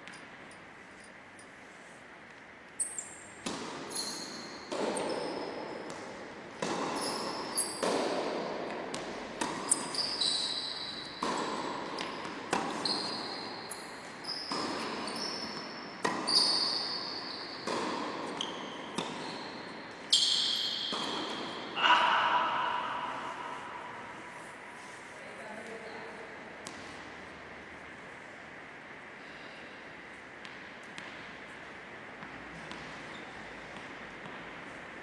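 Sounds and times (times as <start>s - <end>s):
short high squeaks: 2.8s - 3.2s, 3.9s - 5.4s, 6.9s - 7.8s, 9.6s - 11.2s, 12.7s - 17.6s, 18.3s - 21.2s
ball bouncing on hard court: 2.8s - 23.7s, 26.6s - 27.0s, 30.4s - 31.4s, 32.2s - 34.7s
racket striking tennis ball: 3.4s - 13.2s, 14.4s - 16.9s, 17.6s - 19.3s, 20.4s - 24.5s.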